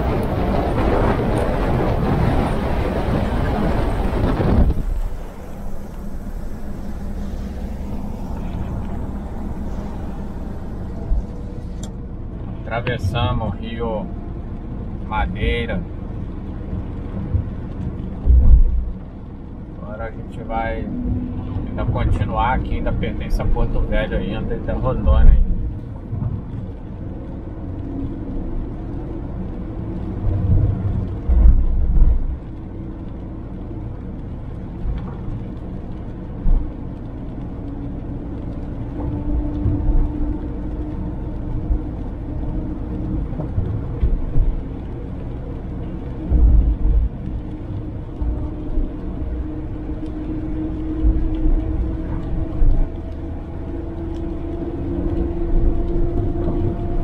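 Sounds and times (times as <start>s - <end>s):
car engine and road hum: 0.0s - 57.0s.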